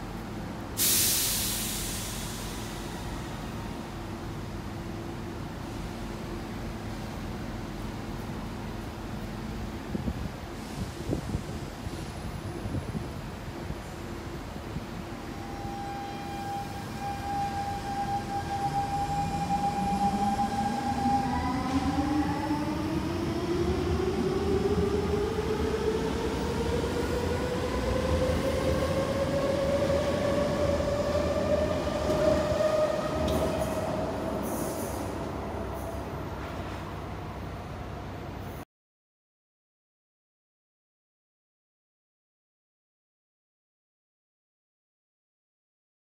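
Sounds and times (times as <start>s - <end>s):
train traction whine rising: 15.3s - 36.4s.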